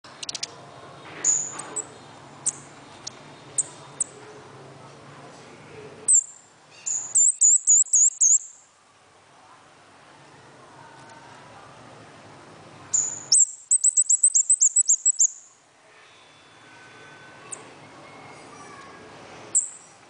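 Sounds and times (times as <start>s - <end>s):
small bird high chirps: 0.1s - 0.6s, 1.2s - 4.2s, 6.1s - 8.7s, 12.9s - 15.6s, 19.5s - 20.0s.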